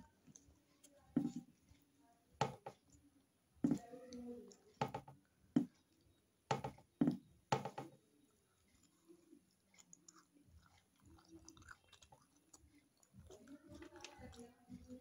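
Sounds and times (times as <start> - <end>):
sharp eating clicks and knocks: 3.7 - 15.0.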